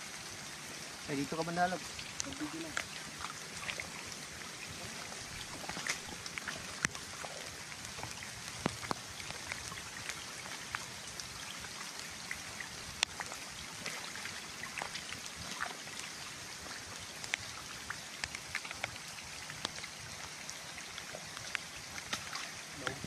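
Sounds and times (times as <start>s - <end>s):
steady hiss: 0.0s - 23.0s
water pattering and dripping: 0.0s - 23.0s
small sharp ticks: 7.9s - 10.8s.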